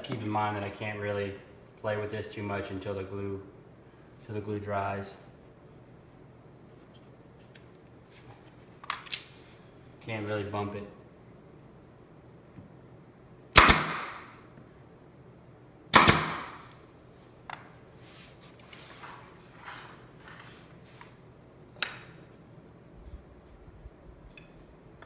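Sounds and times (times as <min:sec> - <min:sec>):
pin nailer firing: 0:13.6 - 0:14.4, 0:15.9 - 0:16.8.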